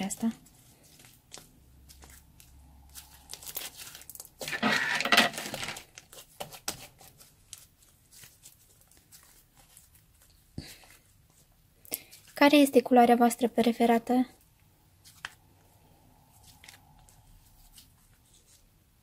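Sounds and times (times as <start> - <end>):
slime kneaded crackling: 0.0 - 4.5.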